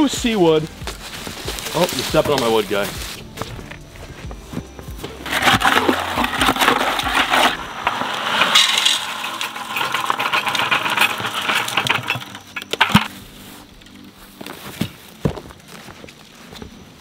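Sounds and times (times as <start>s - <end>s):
hands stirring wet concrete: 5.0s - 13.2s
concrete pouring: 5.1s - 13.2s.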